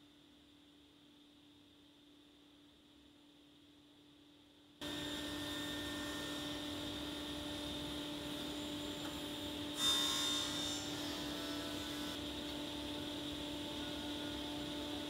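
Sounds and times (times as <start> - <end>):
woodworking machinery humming: 4.8 - 15.0.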